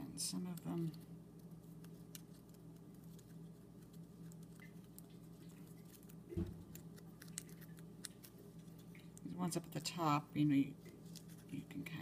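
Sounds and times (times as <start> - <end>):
steady low hum: 0.0 - 12.0
paper crinkling and ticking: 0.4 - 9.3, 10.9 - 12.0
soft thump: 6.3 - 6.7.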